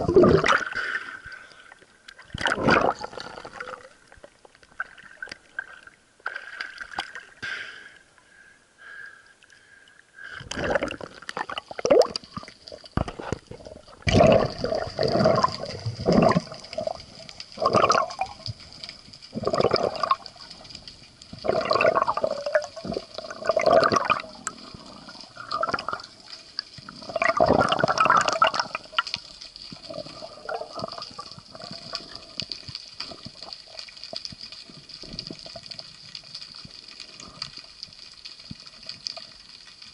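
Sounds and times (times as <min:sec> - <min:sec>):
water gurgling and rushing: 0:00.0 - 0:01.3, 0:02.1 - 0:07.4, 0:10.4 - 0:32.4.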